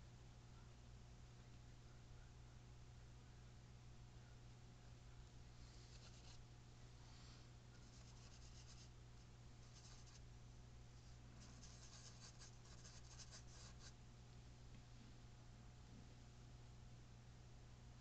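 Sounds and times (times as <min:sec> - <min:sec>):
low electrical hum: 0:00.0 - 0:18.0
paintbrush bristles scratching: 0:05.7 - 0:06.4, 0:07.8 - 0:08.9, 0:09.6 - 0:10.2, 0:11.4 - 0:13.9.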